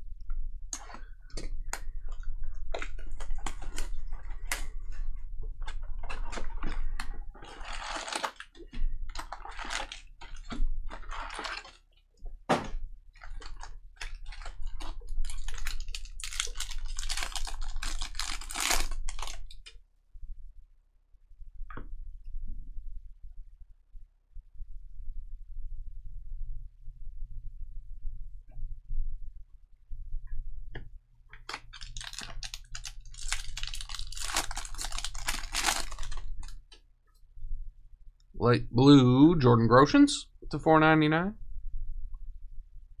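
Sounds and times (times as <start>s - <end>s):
wrapper crinkling: 5.6s - 11.9s, 13.2s - 19.7s, 31.4s - 36.6s.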